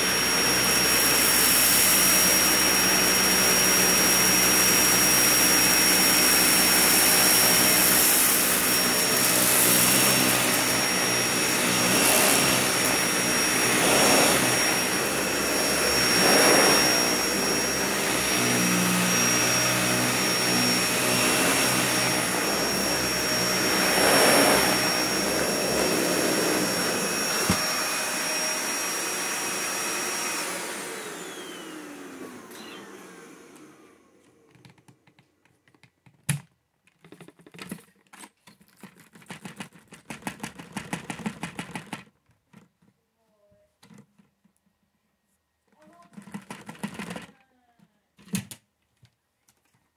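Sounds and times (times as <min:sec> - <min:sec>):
vacuum motor winding down: 0:00.0 - 0:34.6
vacuum cleaner running on carpet: 0:00.0 - 0:35.2.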